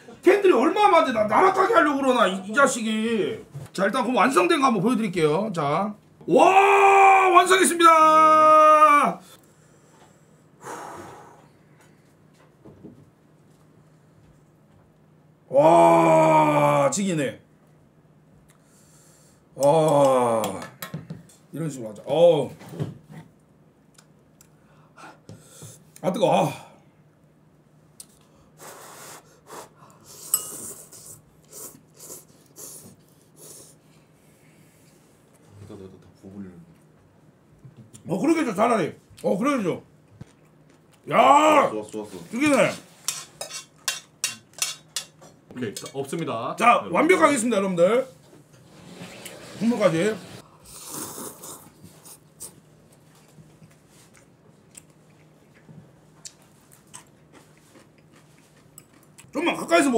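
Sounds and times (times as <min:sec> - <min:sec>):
breaths through nose: 0:28.5 - 0:34.8
person slurping and chewing: 0:28.6 - 0:32.8, 0:50.5 - 0:52.6
chopsticks clinking on bowl: 0:43.1 - 0:45.2
noodle slurping: 0:50.6 - 0:52.2.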